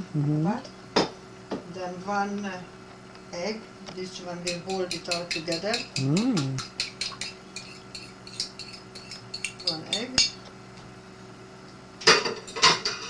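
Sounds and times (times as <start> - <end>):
kitchenware clinking on steel bowl: 4.4 - 10.4.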